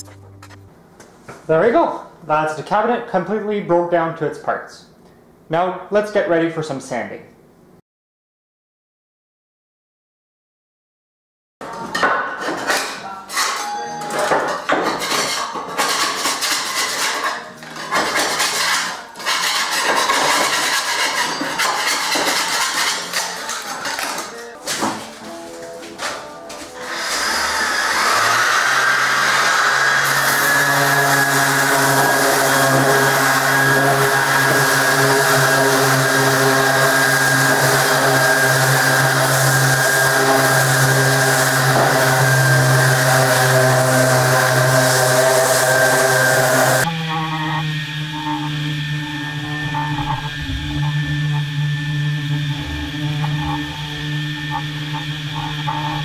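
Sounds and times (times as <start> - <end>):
putty knife scraping wood: 14.8 - 24.2
orbital sander on wood: 26.9 - 56.0.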